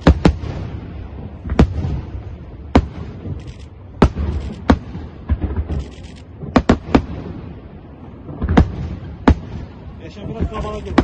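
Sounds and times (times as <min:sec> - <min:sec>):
fireworks crackling: 0:00.0 - 0:11.0
fireworks shells bursting: 0:02.8 - 0:07.1.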